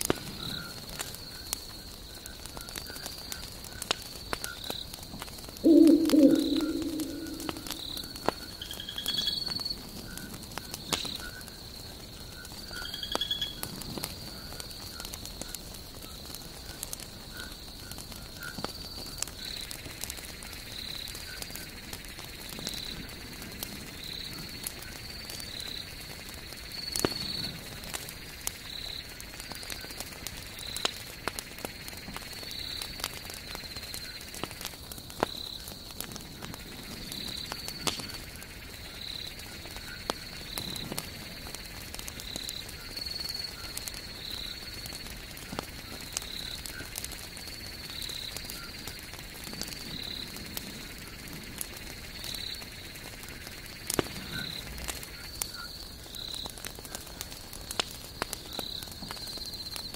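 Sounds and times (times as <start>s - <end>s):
campfire crackling and popping: 0.0s - 9.2s, 9.8s - 59.9s
small animal high-pitched call: 5.6s - 7.9s.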